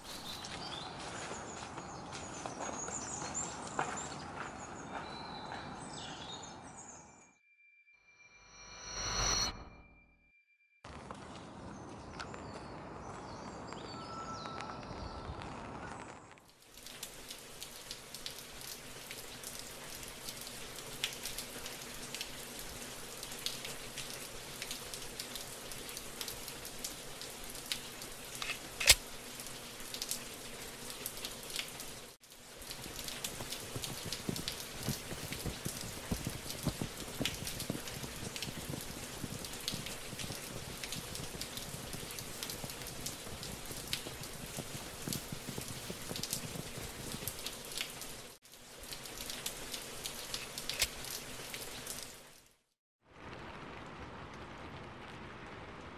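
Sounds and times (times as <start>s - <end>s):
rain pattering: 14.5s - 55.9s.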